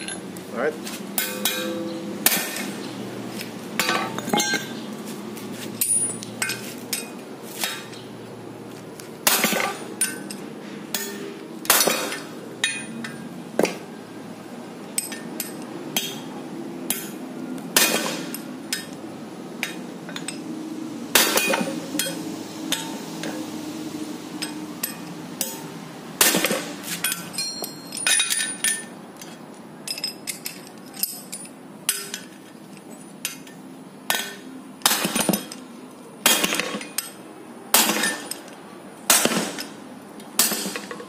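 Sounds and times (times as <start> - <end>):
hammer striking metal socket: 10.9 - 13.7.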